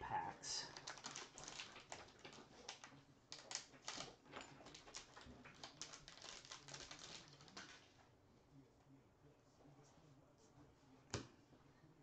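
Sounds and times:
wrapper crinkling and tearing: 0:00.7 - 0:07.9.

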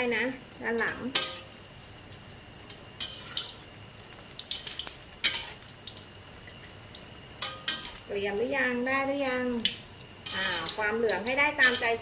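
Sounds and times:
oil sizzling: 0:00.0 - 0:12.0
ladle scraping wok: 0:05.2 - 0:05.6, 0:10.2 - 0:10.9, 0:11.6 - 0:12.0.

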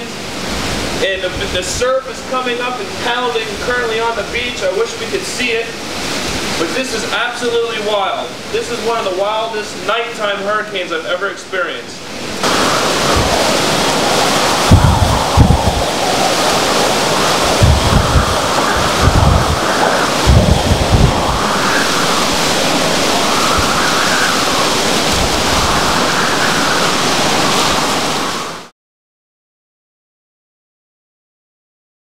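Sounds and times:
heavy surf pounding: 0:00.0 - 0:09.8, 0:12.0 - 0:28.7
wind blowing through palm fronds: 0:00.0 - 0:28.7
wind gusts thumping microphone: 0:12.1 - 0:28.7.

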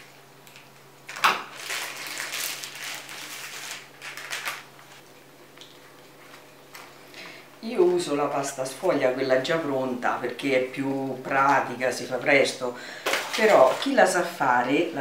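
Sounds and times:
plastic wrapper rustling: 0:00.0 - 0:05.0, 0:13.0 - 0:14.1.

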